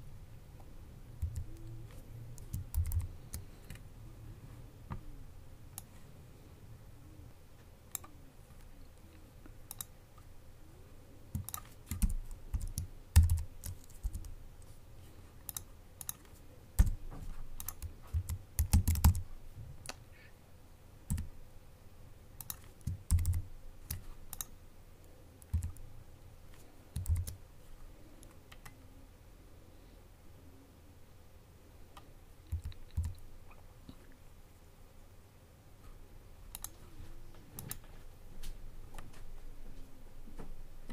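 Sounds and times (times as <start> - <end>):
computer keyboard key clicks: 2.4 - 3.8, 11.4 - 14.3, 17.6 - 19.2, 22.4 - 24.5, 25.4 - 25.8.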